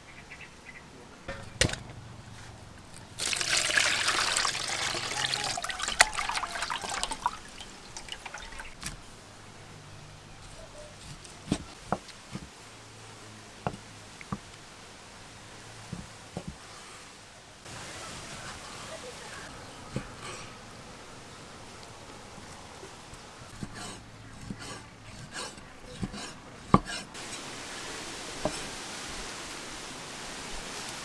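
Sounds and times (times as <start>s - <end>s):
water dripping: 2.9s - 9.0s
water sloshing and splashing: 3.0s - 9.1s.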